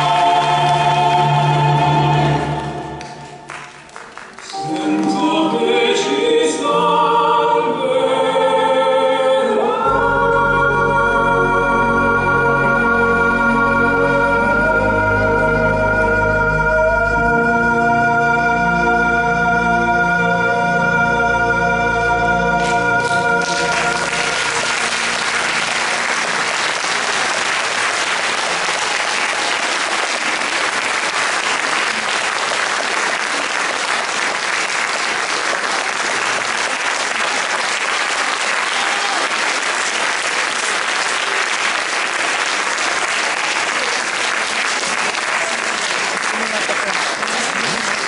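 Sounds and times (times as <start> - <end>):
audience applauding: 0.0 - 4.9, 22.6 - 48.0
music chords: 4.5 - 8.1, 9.7 - 29.5.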